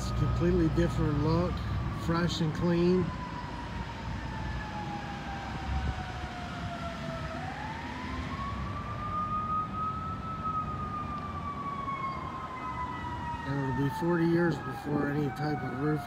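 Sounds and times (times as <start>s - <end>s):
siren wailing: 0.0s - 16.0s.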